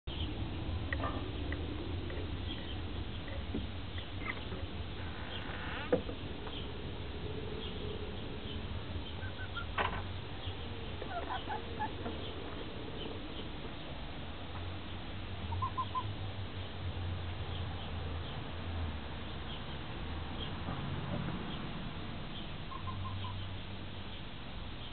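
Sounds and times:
steady low hum: 0.1s - 17.5s
hens giving soft calls: 11.0s - 13.2s.

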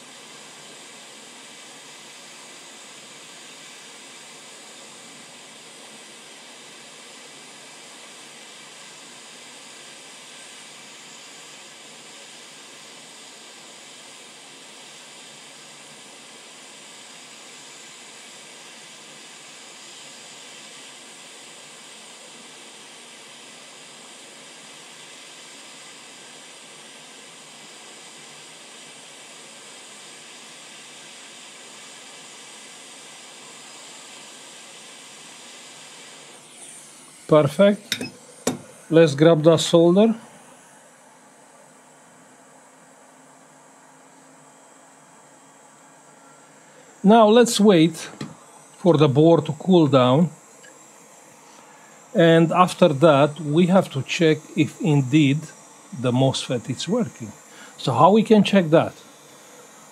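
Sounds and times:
hot air nozzle hissing: 0.0s - 22.2s, 34.1s - 40.6s, 46.7s - 59.9s.

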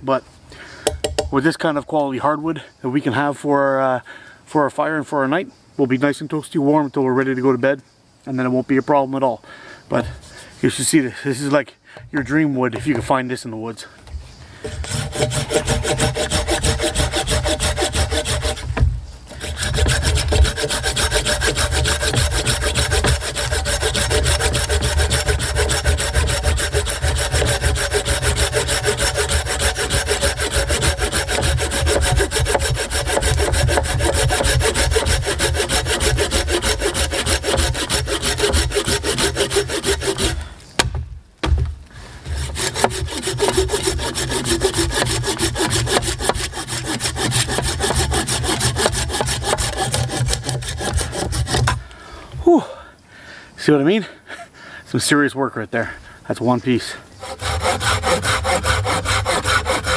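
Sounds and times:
pull saw cutting log: 12.0s - 13.2s, 14.6s - 40.5s, 42.2s - 51.8s, 57.2s - 59.9s.

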